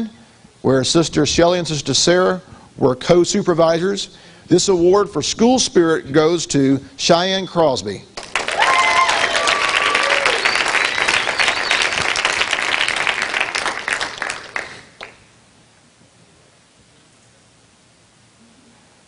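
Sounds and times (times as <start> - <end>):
audience applauding: 8.2 - 15.2.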